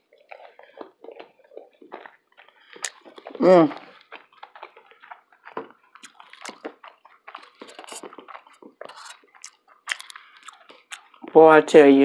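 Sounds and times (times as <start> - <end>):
wet chewing and mouth smacks: 0.0 - 11.6.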